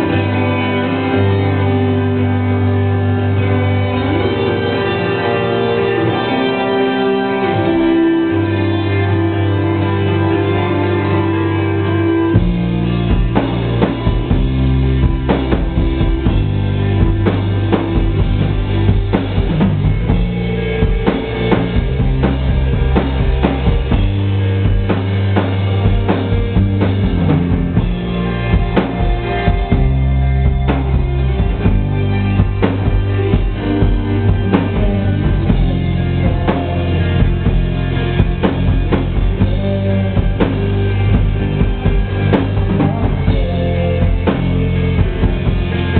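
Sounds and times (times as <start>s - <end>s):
rock band playing: 0.0s - 45.9s
bass drum and snare beat: 12.4s - 45.9s.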